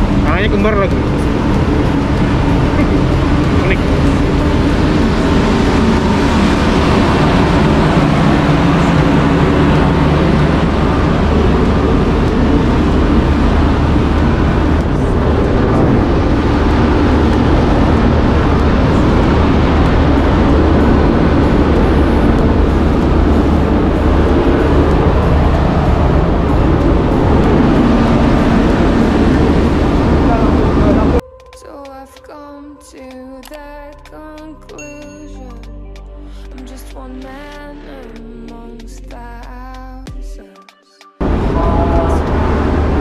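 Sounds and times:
ship machinery drone: 0.0 - 31.2, 41.2 - 43.0.

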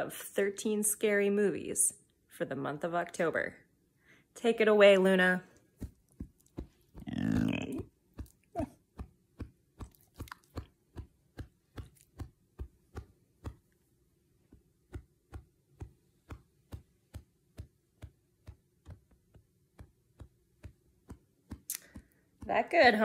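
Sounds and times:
dog mouth smacks: 9.8 - 10.7.

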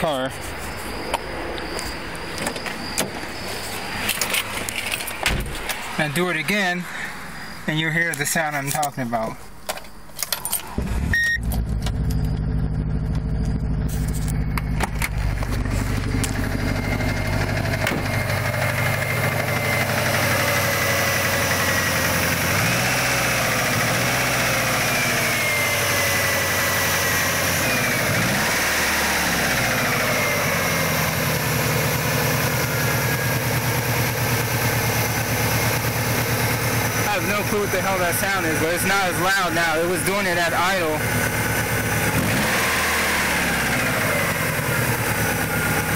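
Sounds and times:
engine idling with knocking: 11.5 - 22.6, 29.0 - 38.6, 39.9 - 45.9.

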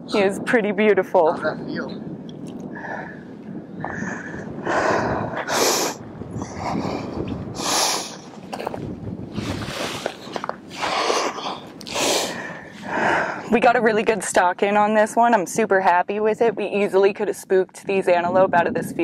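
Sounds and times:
low background rumble: 0.0 - 19.0
breathy rushes of air: 2.6 - 13.5.

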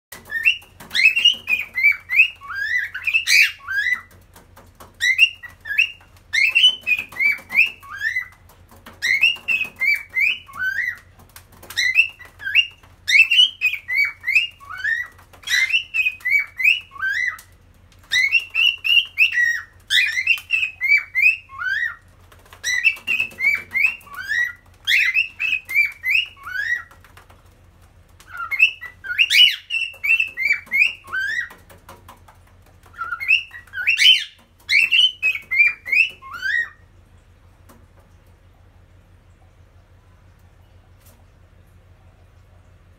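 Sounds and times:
cockatiel whistling song: 0.1 - 4.1, 5.0 - 8.3, 9.0 - 11.0, 11.7 - 17.4, 18.1 - 22.0, 22.6 - 26.9, 28.3 - 31.6, 32.9 - 36.8.

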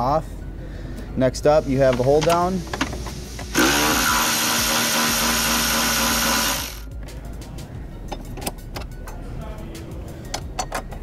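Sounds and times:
electric ratchet whirring: 3.4 - 6.9.

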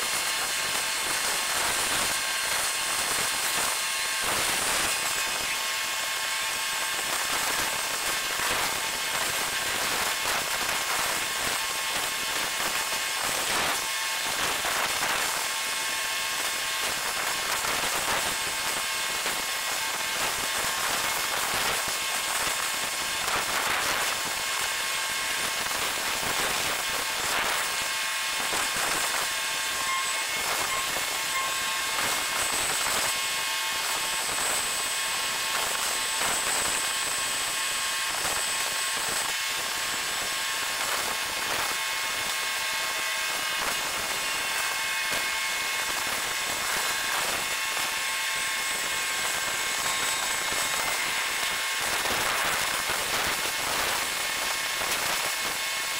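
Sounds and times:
thin high whines: 26.1 - 37.0
dense hiss with clicks and crackles: 48.8 - 55.6.

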